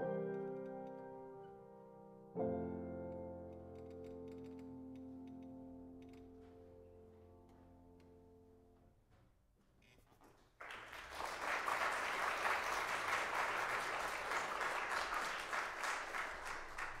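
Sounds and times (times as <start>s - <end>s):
audience applause: 10.4s - 17.0s.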